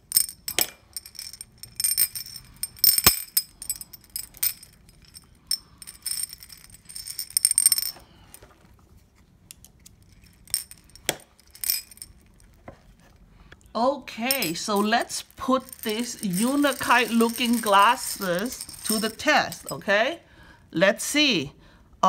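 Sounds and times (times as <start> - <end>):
glass beads clinking on porcelain: 0.0 - 8.1, 10.0 - 12.5, 14.2 - 20.0.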